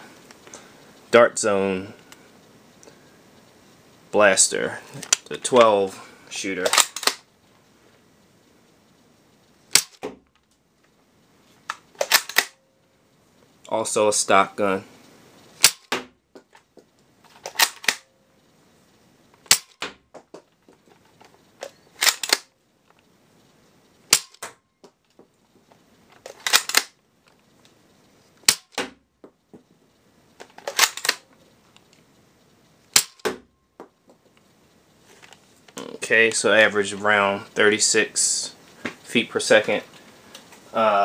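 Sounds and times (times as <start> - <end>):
blaster clicks: 11.7 - 12.6, 30.6 - 31.2.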